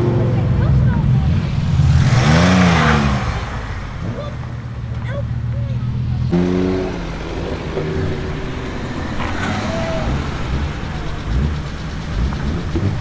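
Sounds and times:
car engine rumbling: 0.0 - 13.0.

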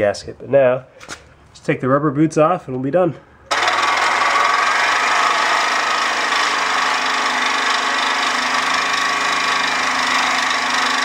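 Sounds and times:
reciprocating saw cutting steel pipe: 3.5 - 11.0.

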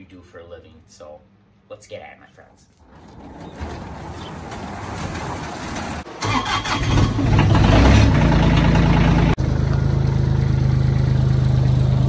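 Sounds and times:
diesel engine cranking and idling: 2.9 - 12.0.

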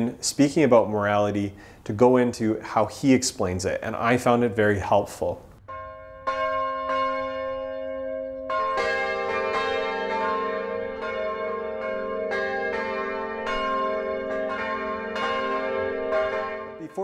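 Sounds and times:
church bells pealing: 5.7 - 17.0.

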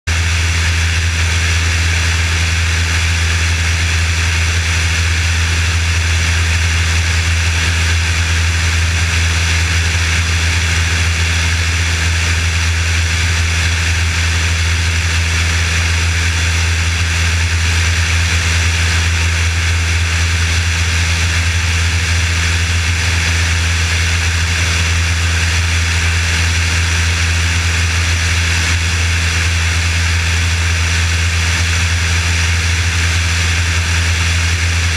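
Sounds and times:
aircraft engine and propeller drone: 0.1 - 34.9.

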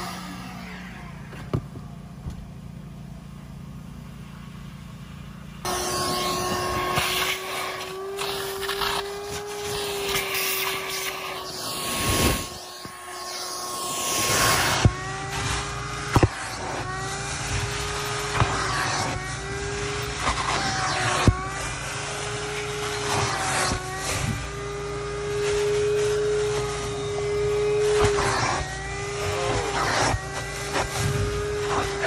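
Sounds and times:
shop vacuum motor whine: 0.0 - 32.0
hose sucking water: 6.2 - 26.9.

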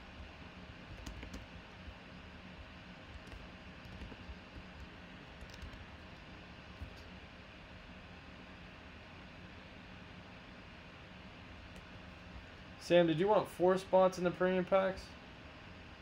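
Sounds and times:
low room hum: 0.0 - 16.0
computer keys typing: 0.9 - 1.9, 3.1 - 6.2.

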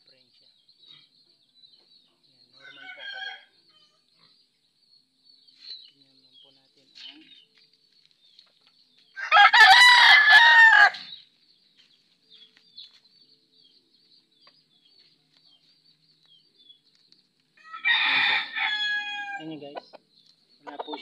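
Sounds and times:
rooster crowing: 2.6 - 3.5, 9.2 - 11.1, 17.6 - 19.4.

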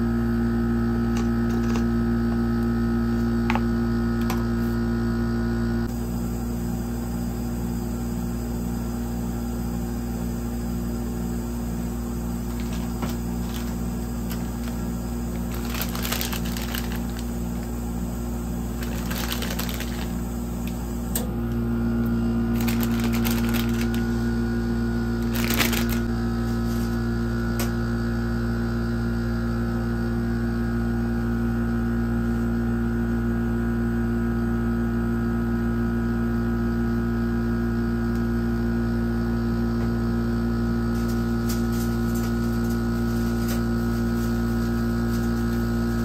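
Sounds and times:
low electrical refrigeration hum: 0.0 - 46.0
plastic bag crinkling: 1.2 - 1.8, 12.4 - 17.8, 18.7 - 20.8, 22.5 - 24.3, 25.2 - 26.1.

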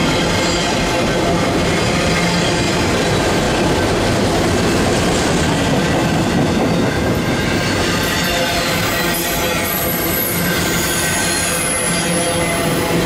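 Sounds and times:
train wheels rumbling on rails: 0.0 - 13.0
high wheel squeal: 6.6 - 13.0.

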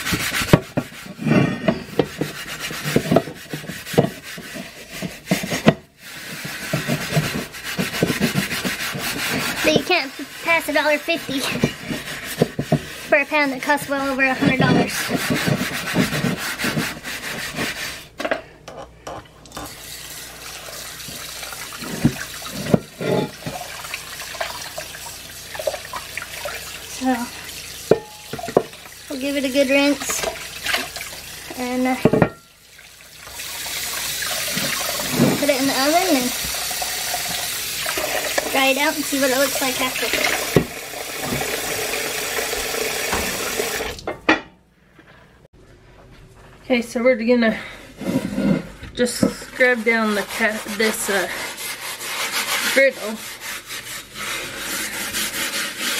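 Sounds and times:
tap water running: 0.0 - 17.9, 19.4 - 44.3, 49.3 - 55.9
scrubbing a griddle by hand: 0.0 - 18.2, 20.2 - 32.2, 33.4 - 40.6, 48.0 - 55.9
faucet running onto griddle: 19.5 - 44.2
iron griddle knocking on sink: 27.9 - 28.8, 32.0 - 32.4.

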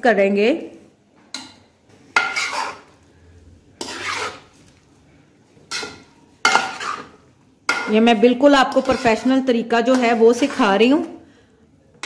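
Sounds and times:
metal spoon scraping a pan: 1.3 - 3.1, 3.7 - 4.7, 5.6 - 11.2.

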